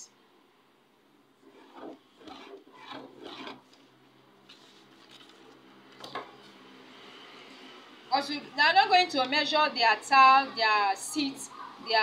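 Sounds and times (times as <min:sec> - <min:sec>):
paper rubbing and scraping: 0:01.4 - 0:03.9, 0:04.5 - 0:05.6.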